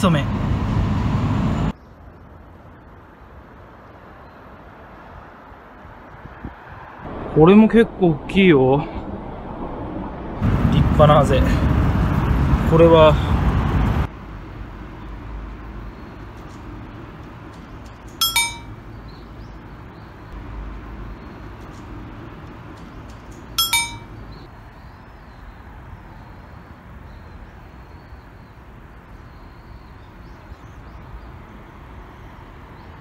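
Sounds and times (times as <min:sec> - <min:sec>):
low outdoor rumble: 0:07.1 - 0:33.0
metallic clinks: 0:17.8 - 0:18.9, 0:23.1 - 0:24.4.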